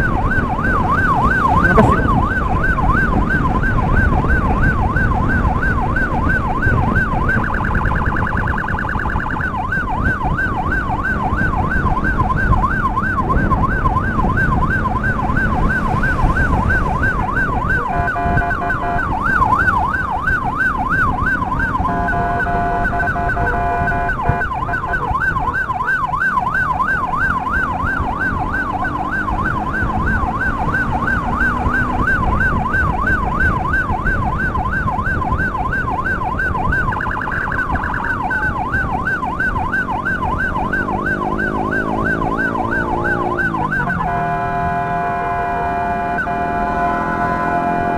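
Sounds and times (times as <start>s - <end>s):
electronic siren yelping: 0.0s - 47.9s
horn blast: 44.0s - 47.9s.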